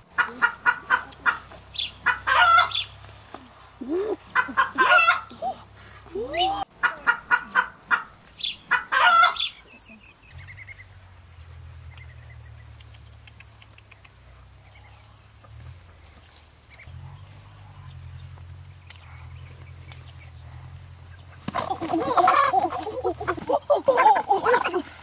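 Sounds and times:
hen clucking: 0.0s - 10.9s, 18.9s - 25.0s
hen squawking: 0.1s - 3.0s, 3.8s - 9.8s
faint chirps and ticks: 0.1s - 21.4s.

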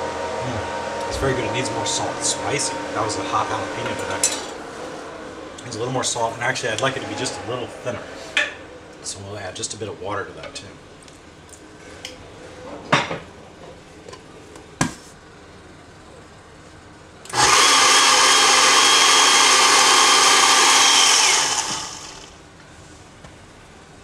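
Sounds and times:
blender running: 17.3s - 22.4s.

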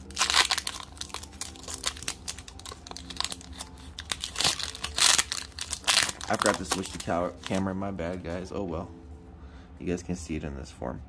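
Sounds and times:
foil wrapper crinkling and tearing: 0.0s - 7.8s.

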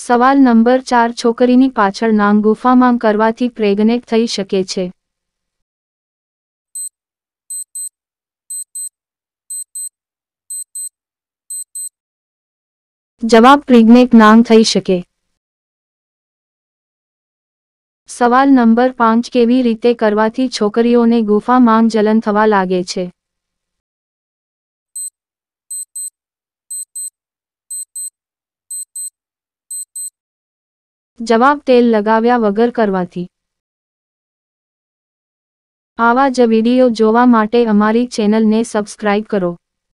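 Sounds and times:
clock ticking: 7.5s - 7.9s, 8.5s - 8.9s, 9.5s - 9.9s, 10.5s - 10.9s, 11.5s - 11.9s, 25.7s - 26.1s, 26.7s - 27.1s, 27.7s - 28.1s, 28.7s - 29.1s, 29.7s - 30.1s.

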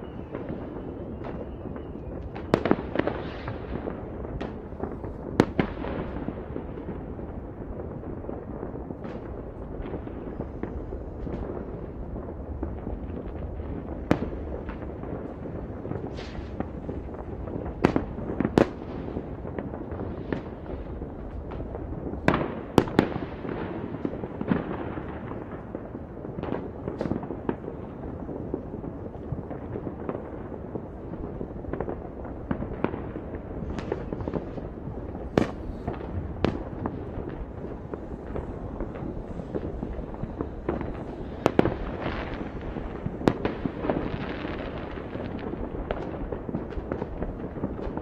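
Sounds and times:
distant fireworks rumble: 0.0s - 48.0s
loud fireworks reports: 0.0s - 48.0s.

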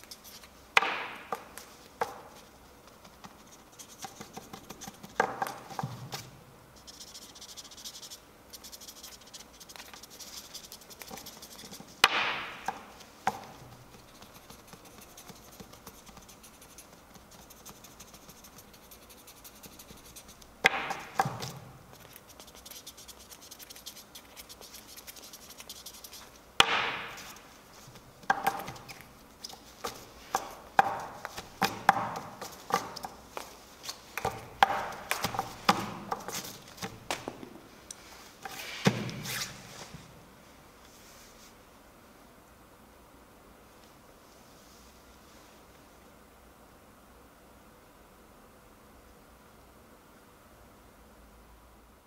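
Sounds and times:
faint scratching and rubbing: 0.0s - 0.6s, 1.6s - 12.0s, 12.8s - 37.3s
marker pens knocking on table: 20.6s - 21.5s, 26.6s - 27.3s, 29.8s - 33.1s, 34.2s - 36.4s.

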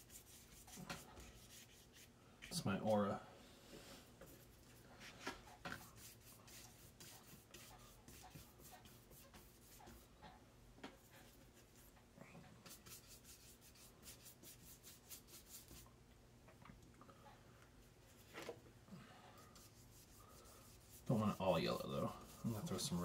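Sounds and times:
paintbrush strokes on paper: 0.0s - 3.2s, 4.2s - 10.3s, 10.9s - 12.0s, 12.6s - 15.9s, 19.4s - 23.0s.

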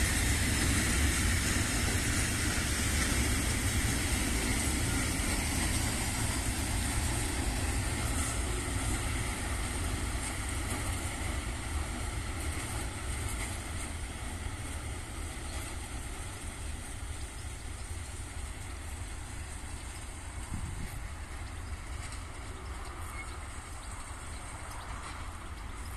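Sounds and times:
diesel locomotive engine rumble: 0.0s - 25.9s
freight train rolling past: 0.0s - 25.9s.

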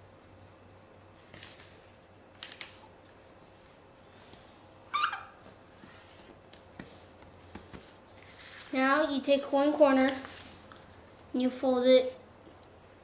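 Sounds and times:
paper rustling and crinkling: 1.2s - 3.8s, 6.8s - 11.0s.

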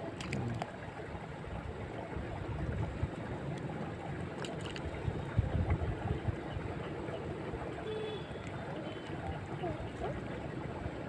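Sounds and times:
wind buffeting microphone: 4.8s - 6.9s.

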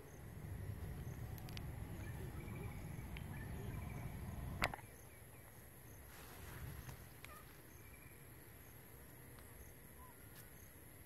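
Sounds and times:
low rumble: 0.0s - 4.8s
faint high chirps: 0.0s - 6.1s
high insect whine: 0.0s - 6.1s.

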